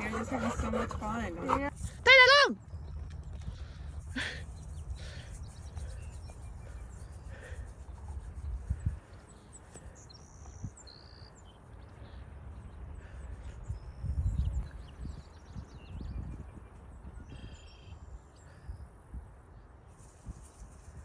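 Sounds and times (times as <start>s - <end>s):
wind rumble on microphone: 2.7s - 10.9s, 12.5s - 21.0s.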